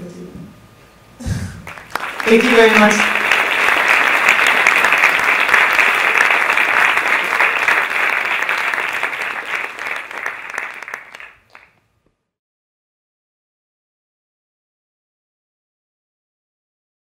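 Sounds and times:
audience applauding: 1.6s - 11.7s.

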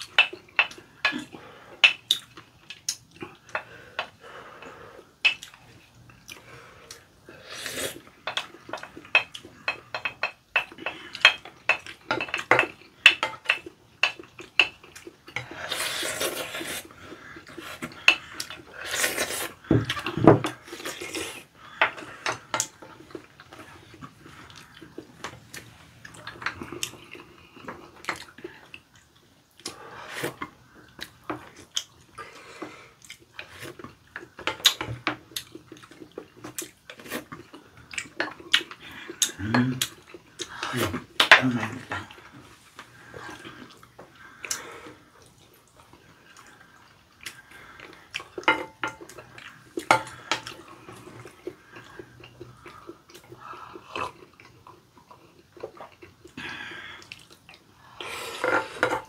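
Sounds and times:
slurping soup: 15.4s - 27.5s.

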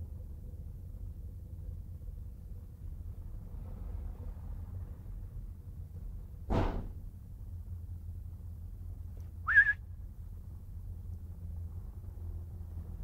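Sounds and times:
low steady rumble: 0.0s - 13.0s
whistle wavering on one note: 9.5s - 9.8s.

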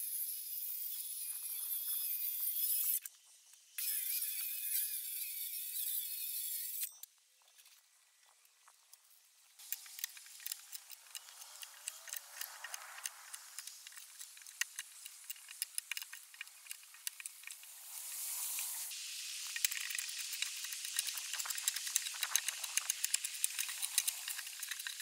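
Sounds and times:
scratchy hiss: 9.1s - 25.0s
hand tools clicking on log: 9.6s - 17.7s, 19.5s - 25.0s.

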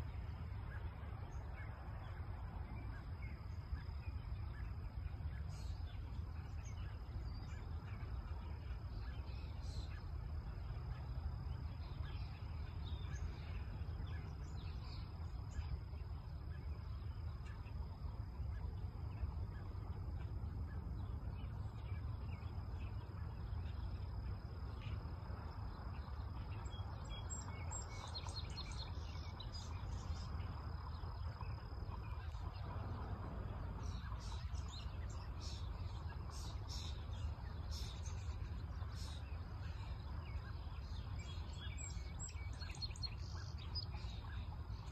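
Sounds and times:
wind rumbling on microphone: 0.0s - 44.9s
bird chirps: 33.6s - 44.9s.

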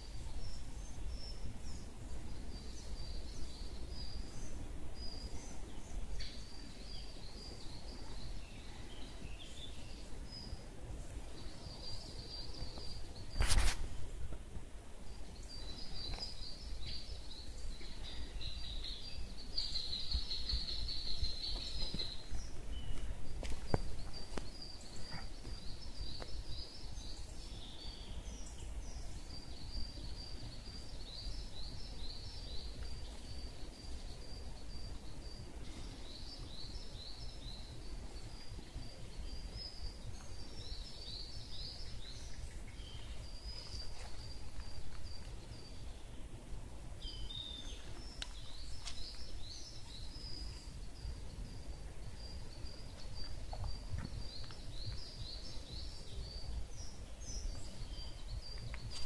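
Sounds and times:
birds chirping and trilling: 15.0s - 59.0s.

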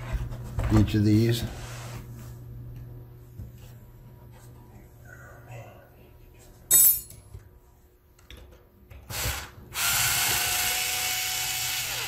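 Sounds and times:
cordless screwdriver running: 9.1s - 12.0s.

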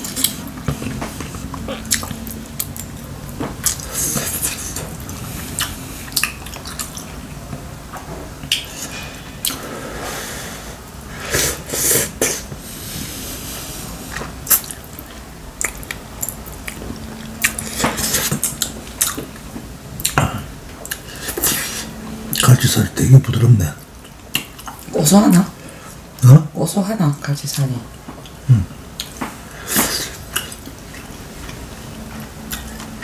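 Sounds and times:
chewing: 0.0s - 7.4s, 14.1s - 22.5s, 23.8s - 24.9s, 29.0s - 33.0s.

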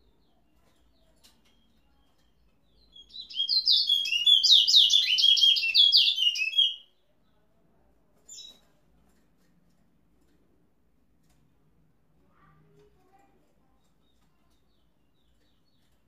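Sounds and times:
finch singing whistled notes: 2.9s - 6.8s.

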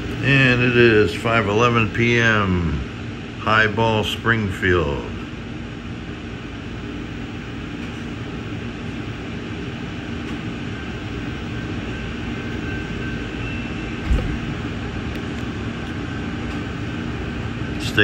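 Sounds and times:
short thump: 14.0s - 14.6s.

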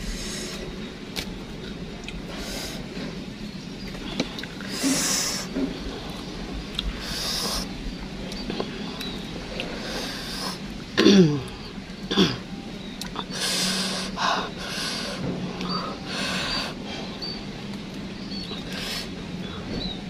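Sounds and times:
hissing breaths through lips: 0.0s - 0.8s, 4.0s - 5.6s, 6.9s - 7.8s, 8.6s - 10.7s, 13.2s - 17.4s, 18.4s - 20.0s.

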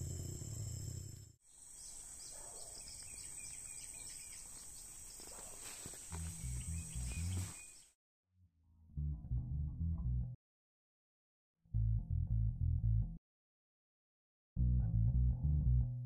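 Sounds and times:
bird chirps: 1.6s - 5.6s, 6.2s - 7.9s
music with plucked bass line: 6.3s - 7.5s, 8.8s - 10.4s, 11.8s - 13.2s, 14.6s - 16.0s.

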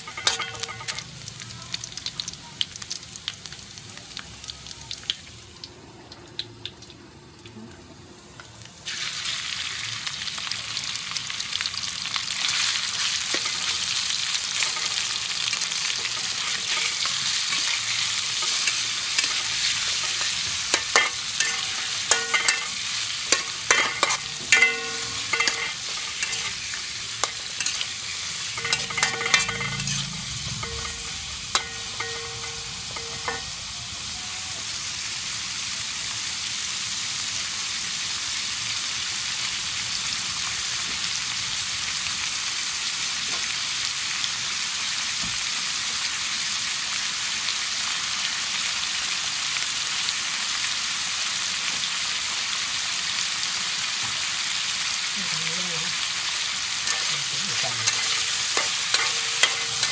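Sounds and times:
metal spatula scraping wok: 0.0s - 1.1s, 12.5s - 33.7s, 56.7s - 59.9s
food sizzling in oil: 0.0s - 7.5s, 8.2s - 59.9s.

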